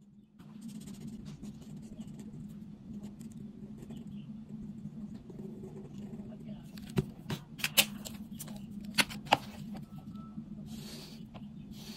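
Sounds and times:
marker pen drawing on paper: 0.4 - 6.6.

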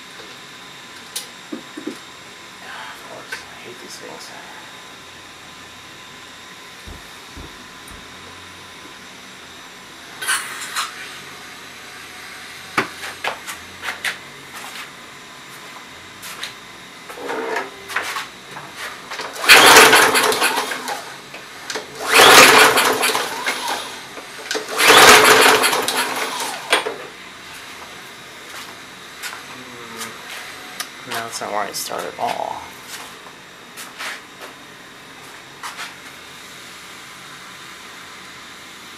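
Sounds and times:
lawn mower engine cranking: 19.1 - 27.1.

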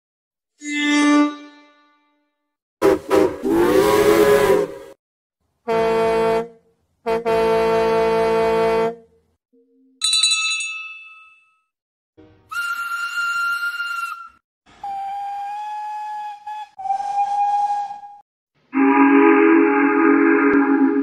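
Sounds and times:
steady train horn blasts: 2.8 - 5.0, 5.7 - 9.1, 18.8 - 21.0
wavering train horn: 3.1 - 5.0, 5.7 - 9.0, 18.8 - 21.0
bell ring: 10.0 - 11.7.

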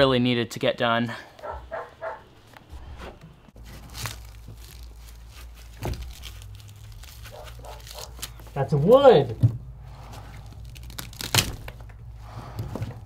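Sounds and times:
sharp wood cracks: 3.6 - 8.6, 10.2 - 12.0
rotten wood tearing and crumbling: 3.6 - 9.3, 9.9 - 13.0.

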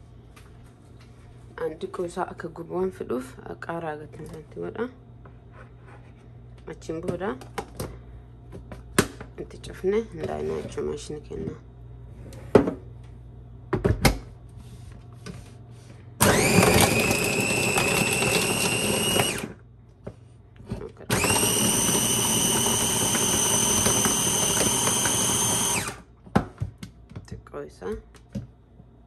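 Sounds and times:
food chopper motor whining: 16.2 - 19.6, 21.0 - 26.1.

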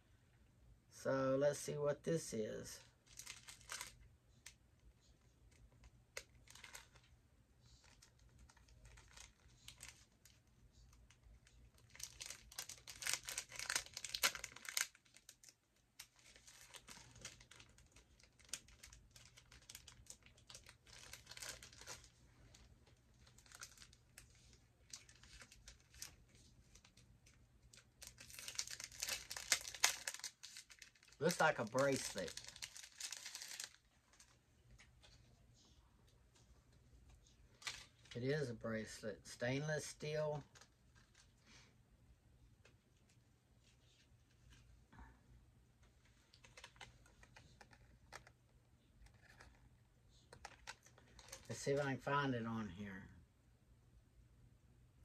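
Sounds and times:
plastic packet crinkling: 3.0 - 4.6, 5.5 - 7.1, 7.7 - 35.2, 37.5 - 38.2, 39.8 - 41.4, 46.1 - 48.4, 49.0 - 52.1.

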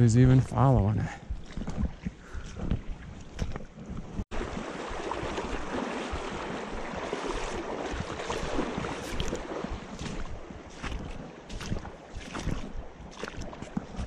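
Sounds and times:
creek water rushing: 4.3 - 13.6.

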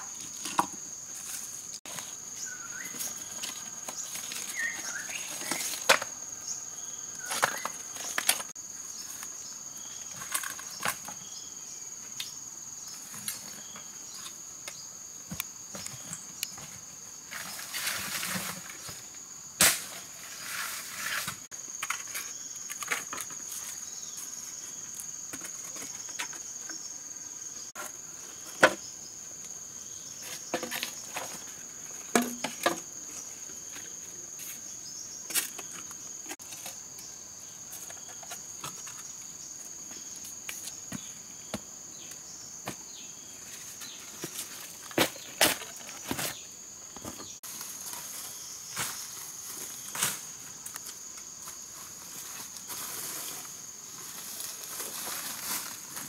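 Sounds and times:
high insect drone: 0.0 - 56.0
rustling in dry leaves: 1.1 - 5.9, 47.4 - 56.0
stones and wooden poles knocking: 32.1 - 32.8.

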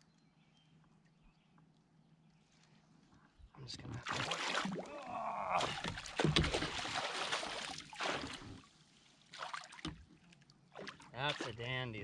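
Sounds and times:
fish thrashing and splashing: 4.0 - 8.7.

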